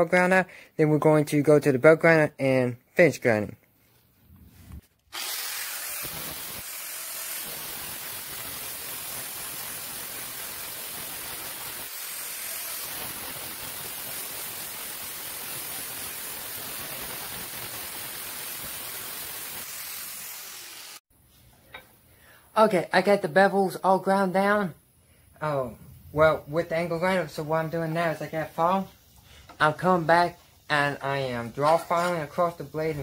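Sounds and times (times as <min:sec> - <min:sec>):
angle grinder grinding steel: 0:05.1 - 0:16.2.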